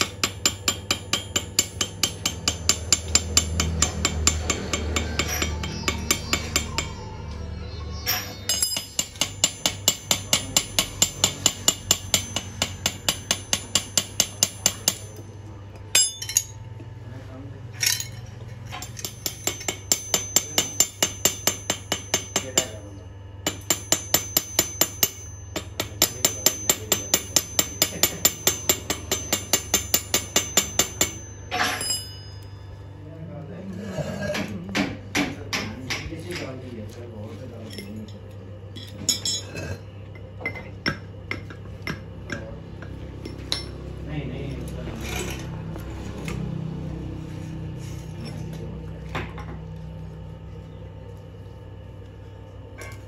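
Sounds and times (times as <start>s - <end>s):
hammer tapping on metal: 0.0s - 7.1s, 8.1s - 15.3s, 18.7s - 22.8s, 23.4s - 32.3s, 34.2s - 36.6s, 40.4s - 43.8s.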